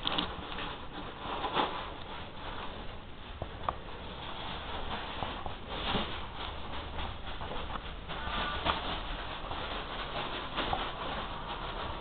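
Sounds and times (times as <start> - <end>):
cat scuffling and rustling: 0.0 - 12.0.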